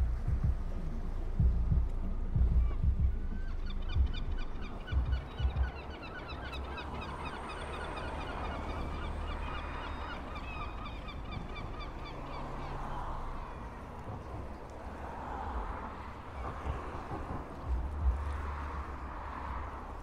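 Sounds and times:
low thumps: 0.0s - 5.8s
steady low rumble: 0.0s - 20.0s
flock of birds calling: 2.6s - 20.0s.

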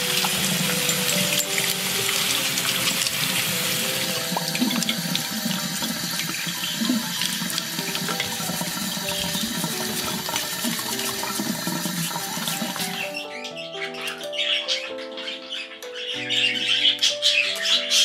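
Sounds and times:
water running from a tap: 0.0s - 13.3s.

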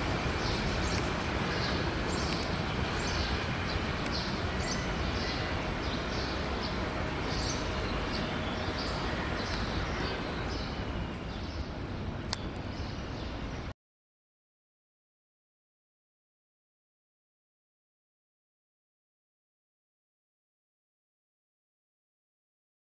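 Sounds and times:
bird chirping: 0.0s - 13.7s
train rumbling: 0.0s - 13.7s.

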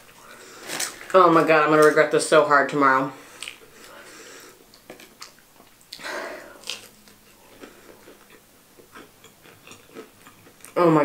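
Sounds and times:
crunching bite: 6.6s - 10.8s.

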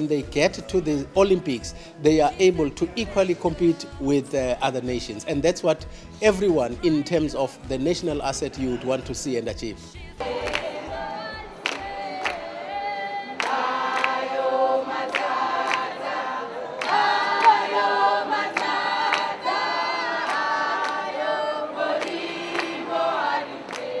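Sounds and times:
women singing in chorus: 10.0s - 24.0s
hand claps: 10.2s - 11.0s, 11.6s - 12.5s, 13.4s - 16.2s, 16.8s - 24.0s.

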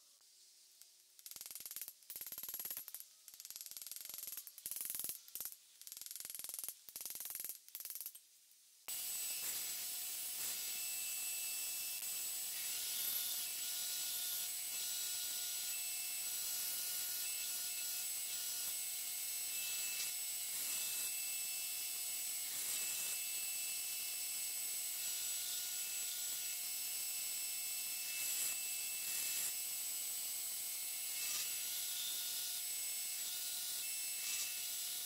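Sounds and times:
belt grinder grinding steel: 8.9s - 24.0s, 27.8s - 35.0s.

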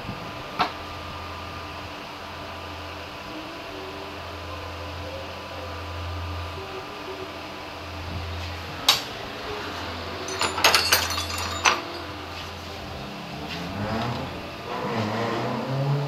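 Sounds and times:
sharp clinks and clatter: 10.2s - 12.2s.

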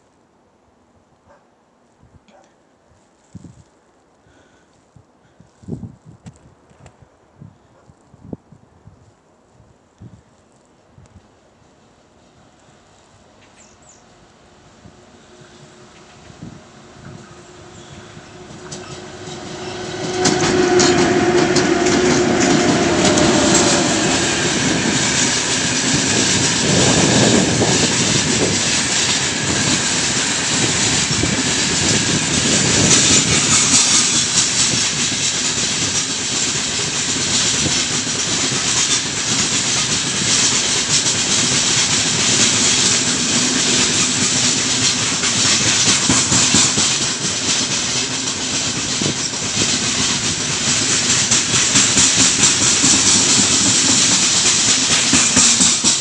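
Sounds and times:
freight train rumbling past: 11.7s - 56.0s
electric locomotive humming: 11.9s - 56.0s
wheels clattering on rails: 15.4s - 56.0s.

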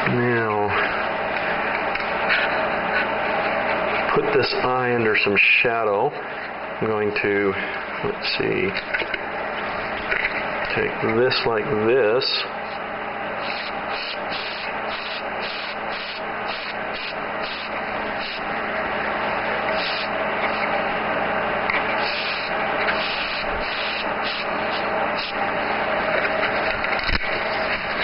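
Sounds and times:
low steady hum: 0.0s - 28.0s
airbrush spraying hiss: 13.4s - 18.5s, 19.7s - 20.8s, 21.8s - 25.4s.

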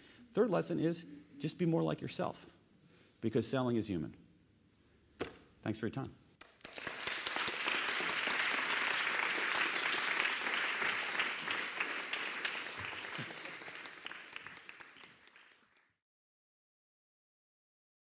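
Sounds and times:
audience applauding: 6.4s - 16.0s.

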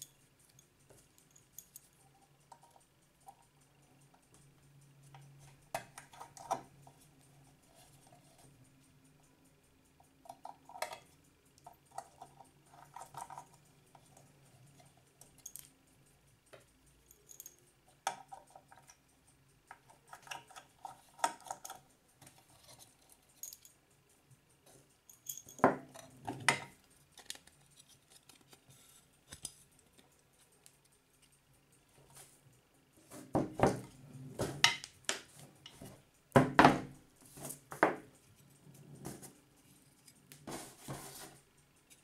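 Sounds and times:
screwdriver clicking on metal screws: 17.0s - 23.7s.

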